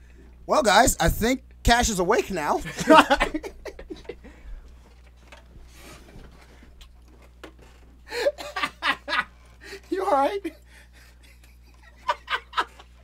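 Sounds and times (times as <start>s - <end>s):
men laughing: 2.6s - 4.6s, 8.1s - 13.0s
soft rubbing and rustling: 4.6s - 8.0s.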